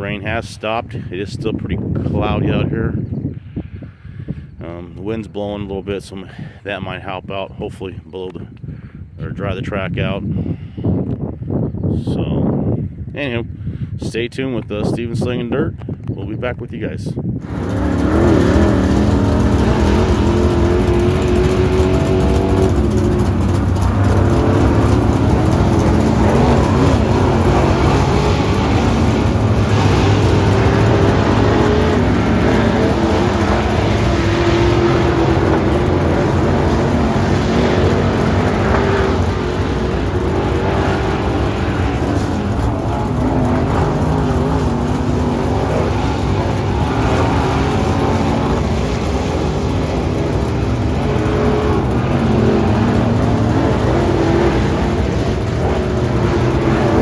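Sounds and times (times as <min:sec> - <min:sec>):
race car engines accelerating: 0:17.4 - 0:57.0.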